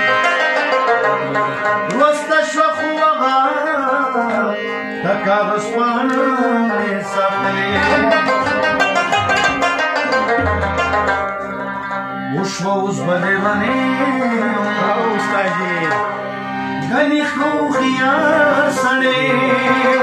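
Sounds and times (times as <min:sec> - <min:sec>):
harmonium rubab and tabla music: 0:00.0 - 0:20.0
man singing: 0:01.8 - 0:09.4, 0:12.3 - 0:16.2, 0:16.8 - 0:20.0
low tabla strokes: 0:07.6 - 0:11.9.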